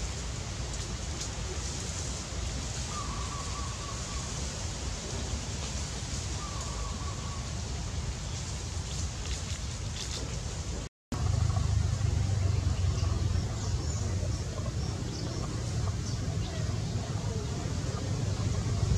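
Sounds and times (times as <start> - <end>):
low rumble: 11.1 - 18.9.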